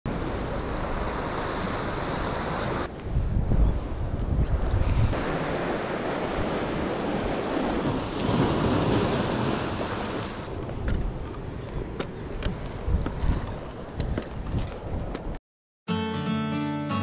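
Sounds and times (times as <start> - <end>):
sea waves washing at shore: 0.1 - 2.9, 4.8 - 11.6
wind buffeting microphone: 2.8 - 15.4.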